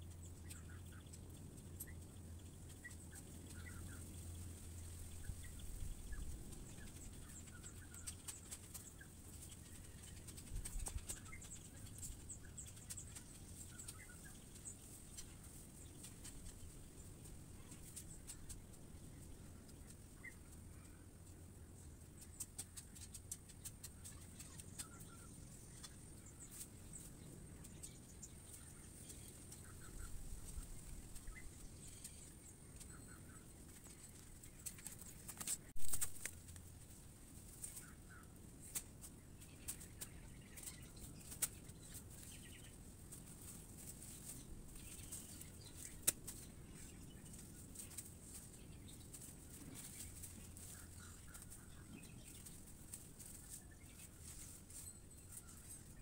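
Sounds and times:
dry leaves rustling: 33.5s - 56.0s.

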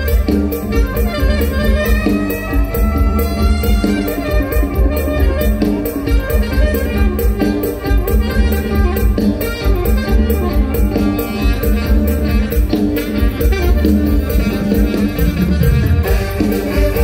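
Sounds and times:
drum kit beat: 0.0s - 17.0s
live band music: 0.0s - 17.0s.

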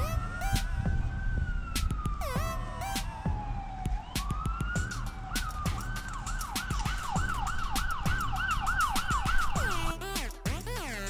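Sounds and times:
emergency siren yelping: 0.0s - 10.2s.

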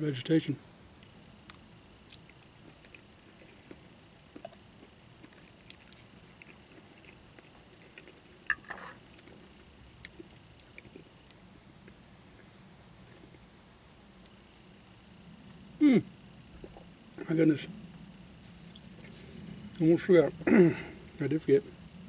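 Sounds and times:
quiet chewing: 1.0s - 13.6s, 16.5s - 17.3s, 17.9s - 19.9s.

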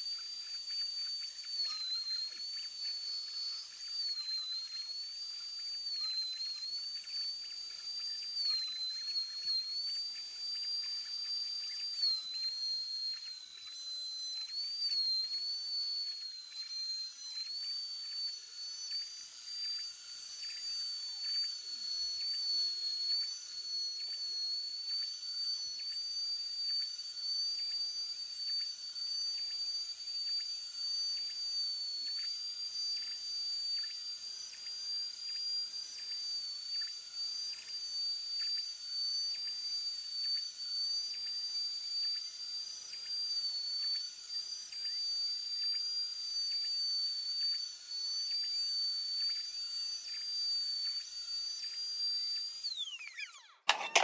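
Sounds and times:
router spindle whining: 1.2s - 28.0s, 48.8s - 54.0s.

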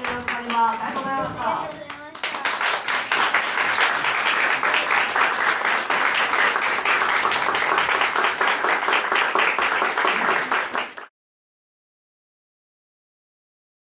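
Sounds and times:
small group clapping: 0.0s - 11.1s.

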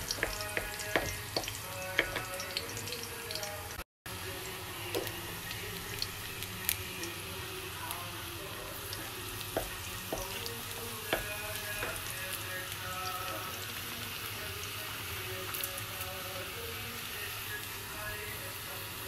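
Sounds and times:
wooden spoon knocking against pan: 0.0s - 2.3s, 9.5s - 10.4s, 11.1s - 12.1s
garlic sizzling in hot oil: 0.0s - 19.0s.

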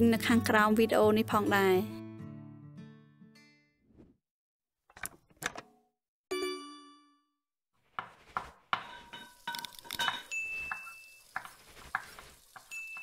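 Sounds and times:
dishes and cutlery clattering: 8.8s - 11.6s.

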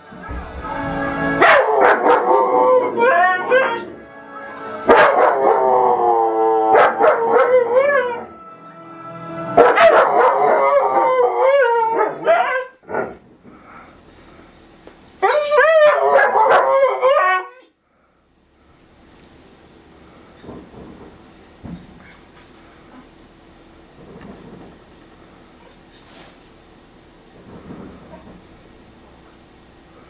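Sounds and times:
dog howling: 1.0s - 4.0s, 4.8s - 8.4s, 9.6s - 13.2s, 15.2s - 17.7s
dog yipping: 9.6s - 10.8s, 12.0s - 12.8s, 15.2s - 17.7s.

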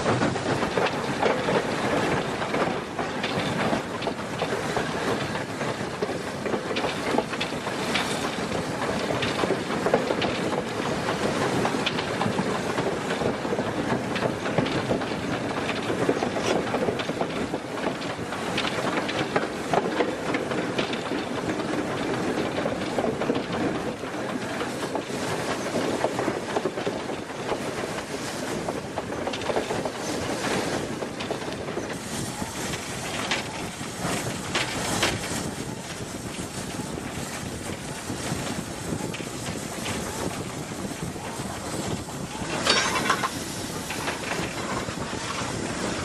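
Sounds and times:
steam locomotive wheels clattering: 0.0s - 46.0s
sharp metallic clanks: 42.6s - 43.5s.

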